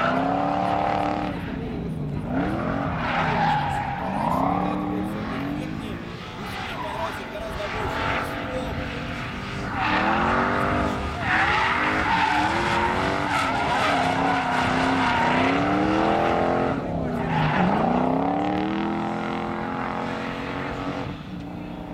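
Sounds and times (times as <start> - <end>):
car engine revving hard: 7.8 - 21.7.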